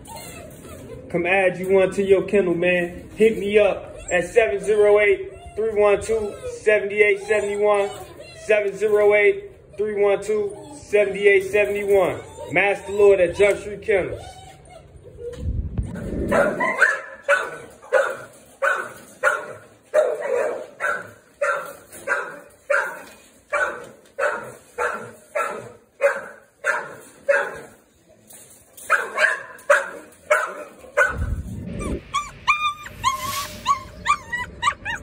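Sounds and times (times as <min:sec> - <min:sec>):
dog whining and yelping: 0:00.0 - 0:01.1, 0:03.8 - 0:08.8, 0:09.6 - 0:26.2, 0:28.9 - 0:35.0
dog barking: 0:16.3 - 0:27.7, 0:28.9 - 0:31.3.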